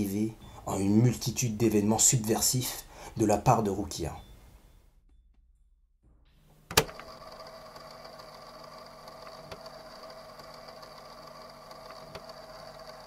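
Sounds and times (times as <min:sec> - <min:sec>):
mechanical whirring hum: 0:06.4 - 0:13.0.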